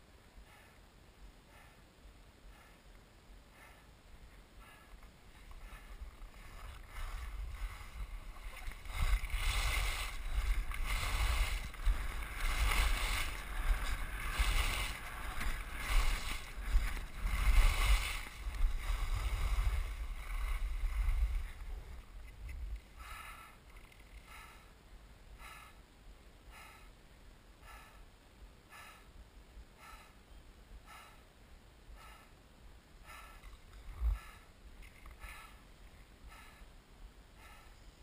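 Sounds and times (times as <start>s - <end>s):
wind rumbling on microphone: 3.5s - 25.6s, 33.0s - 36.6s
skis carving on snow hiss: 6.6s - 21.6s.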